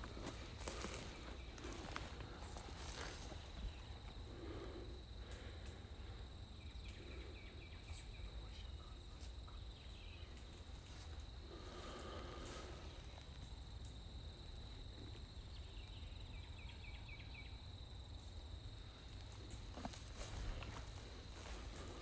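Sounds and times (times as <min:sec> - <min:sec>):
footsteps on pine needles: 0:00.0 - 0:03.6, 0:19.6 - 0:22.0
high insect buzz: 0:00.0 - 0:22.0.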